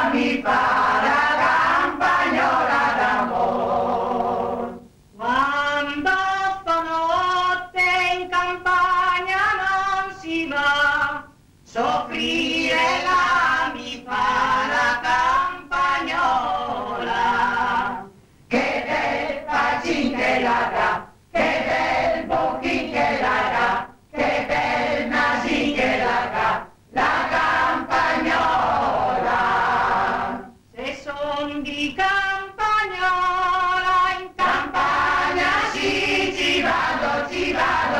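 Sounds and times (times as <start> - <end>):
choir singing: 0.0 - 4.9, 11.7 - 31.0, 34.1 - 37.9.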